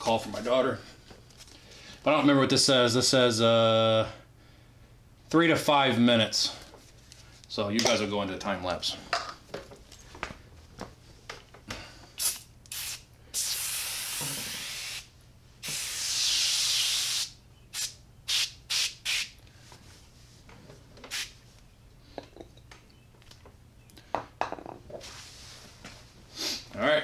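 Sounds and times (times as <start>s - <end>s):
aerosol can spraying: 12.2s - 19.4s, 21.1s - 21.4s.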